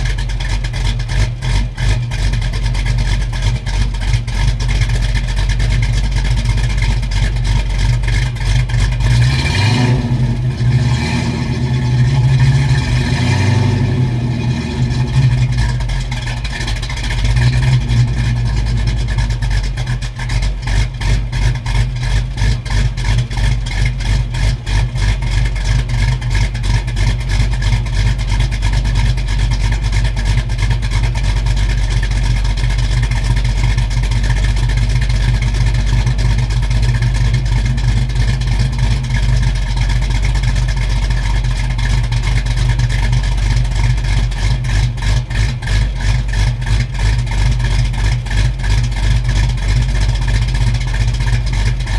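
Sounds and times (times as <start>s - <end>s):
car engine idling choppily: 0.0s - 51.9s.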